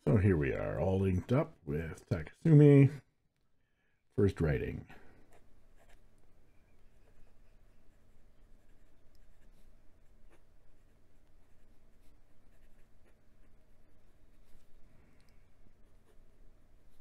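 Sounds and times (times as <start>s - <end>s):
pen nib scratching on paper: 5.3s - 6.1s, 6.7s - 14.8s.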